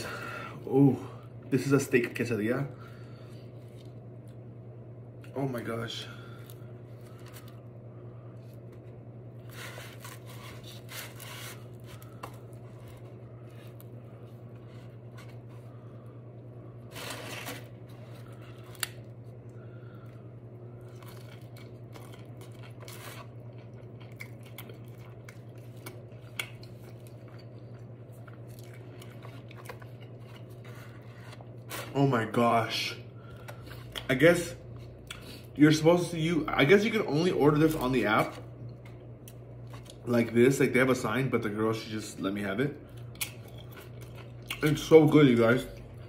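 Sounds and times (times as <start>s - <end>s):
steady low hum: 0.0s - 46.0s
chewing and crunching food: 6.2s - 32.3s, 33.1s - 35.9s, 36.7s - 40.4s, 42.6s - 46.0s.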